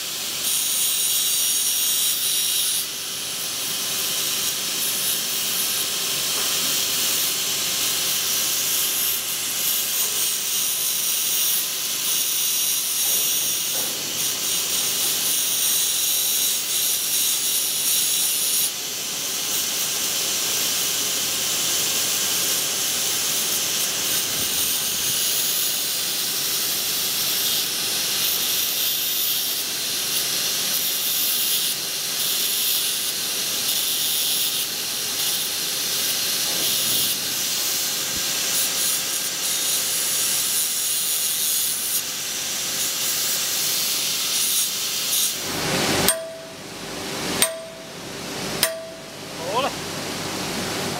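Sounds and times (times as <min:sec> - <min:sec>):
grinding disc on metal wire: 0:46.1 - 0:46.6, 0:47.4 - 0:47.9, 0:48.6 - 0:49.1.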